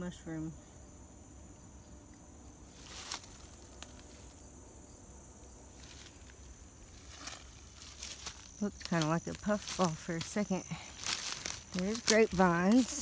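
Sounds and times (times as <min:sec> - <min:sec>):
insects chirping: 0:00.0 - 0:13.0
rustle of dry leaves underfoot: 0:02.6 - 0:04.5, 0:05.7 - 0:13.0.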